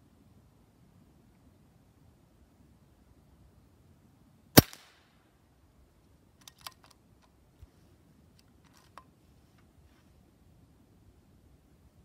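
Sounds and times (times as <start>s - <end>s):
air rifle shot: 4.6s - 5.0s.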